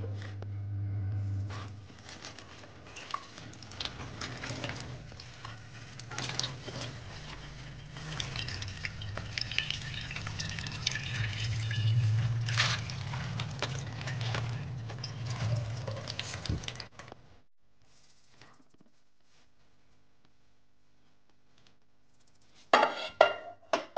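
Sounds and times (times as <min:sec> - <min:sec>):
low steady hum: 0:00.0 - 0:17.0
gloved hand scrubbing pan: 0:01.6 - 0:16.9.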